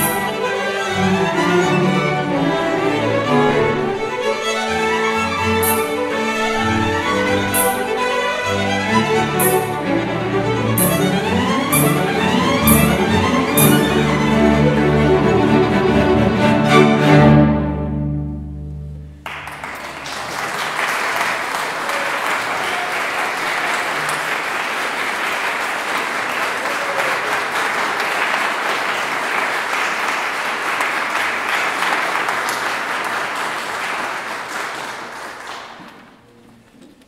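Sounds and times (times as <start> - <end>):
string orchestra chord: 0.0 - 19.2
audience applause: 19.2 - 36.5.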